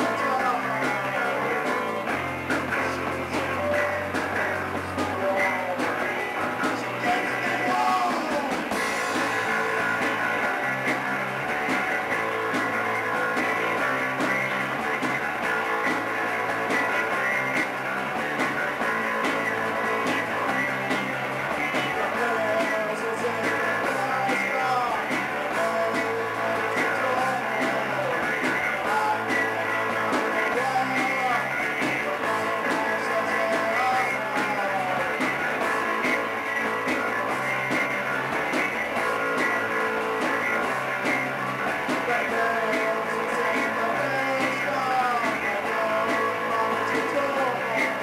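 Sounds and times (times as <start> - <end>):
man singing into microphone: 0.0 - 2.0, 2.8 - 8.7, 21.8 - 35.3, 41.9 - 48.0
drums: 0.0 - 48.0
electric bass: 0.0 - 48.0
electric guitars: 0.0 - 48.0.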